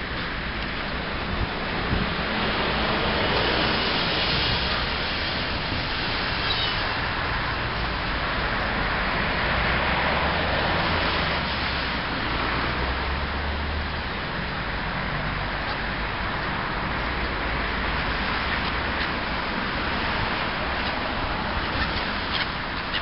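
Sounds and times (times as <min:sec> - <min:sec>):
wind blowing across microphone: 0:00.0 - 0:23.0.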